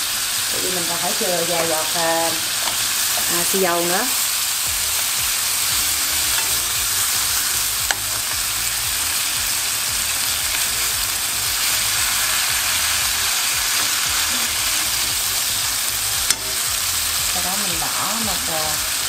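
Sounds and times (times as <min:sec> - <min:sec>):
meat sizzling in a pan: 0:00.0 - 0:19.0
chopsticks stirring: 0:04.6 - 0:19.0.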